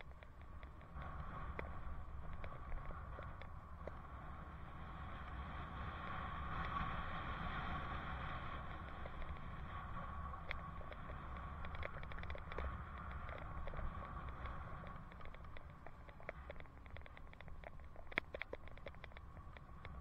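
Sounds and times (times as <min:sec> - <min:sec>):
bicycle tyres on asphalt: 0:00.0 - 0:20.0
wind rumble: 0:00.0 - 0:20.0
light clicks and rattles: 0:08.5 - 0:20.0.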